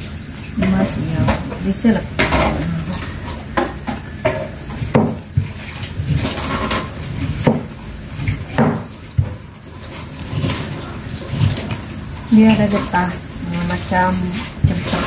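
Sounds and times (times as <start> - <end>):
knife chopping fruit rind: 3.6 - 7.8, 8.4 - 9.4.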